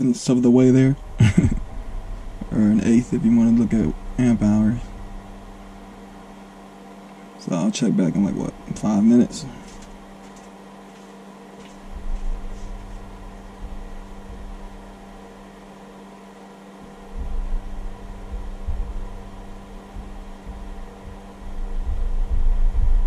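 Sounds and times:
low rumbles: 0.0s - 10.4s, 11.5s - 23.0s
cooling fan humming: 0.0s - 23.0s.

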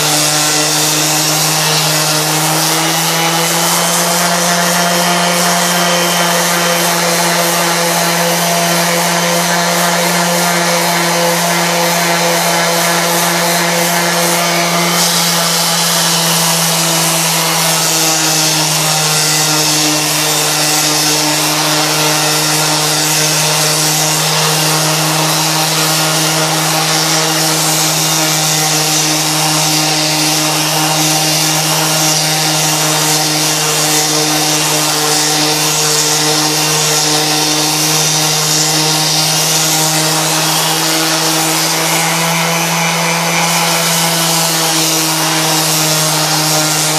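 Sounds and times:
abrasive hissing on wood: 0.0s - 46.9s
orbital sander motor hum: 0.0s - 46.9s.

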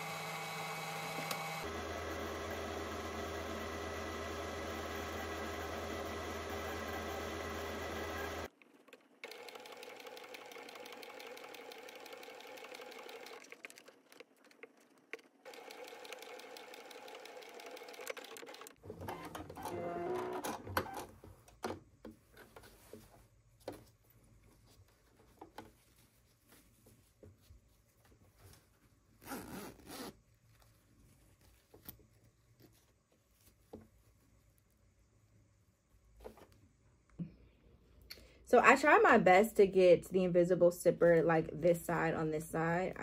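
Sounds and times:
sewing machine stitching: 0.0s - 21.2s.

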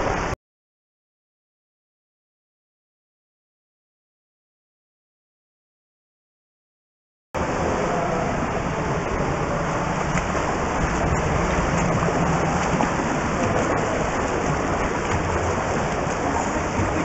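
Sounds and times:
water splashing from swimming: 7.4s - 17.0s.

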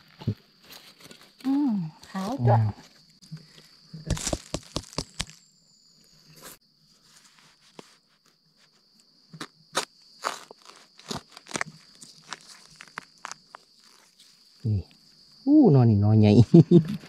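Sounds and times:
dry leaves crunching: 4.1s - 5.4s, 10.2s - 14.5s
knife chopping into soil: 4.1s - 5.4s.

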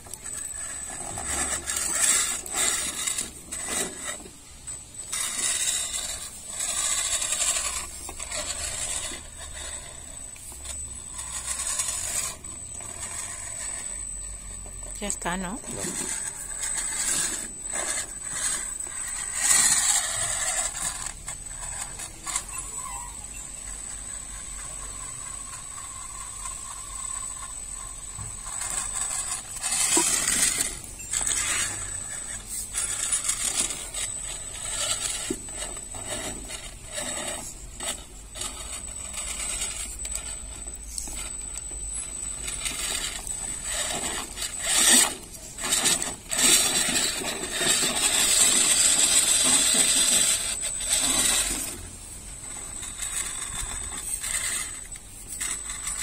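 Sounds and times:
motor drivetrain whine: 0.0s - 56.0s
toy car clattering and scraping: 0.0s - 56.0s.

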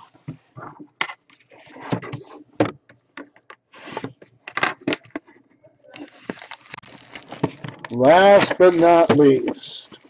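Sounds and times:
cellophane crinkling and tearing: 6.0s - 10.0s.

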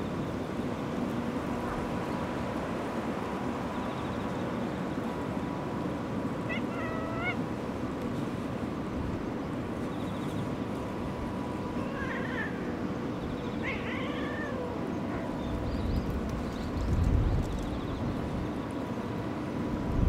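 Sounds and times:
low outdoor background: 0.0s - 20.0s
cat meowing: 6.5s - 7.4s, 11.8s - 12.7s, 13.6s - 15.4s.

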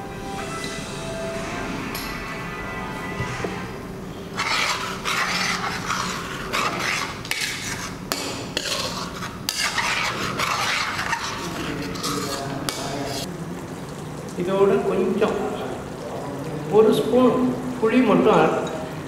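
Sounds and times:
metal spoon scraping wok: 3.3s - 13.3s.

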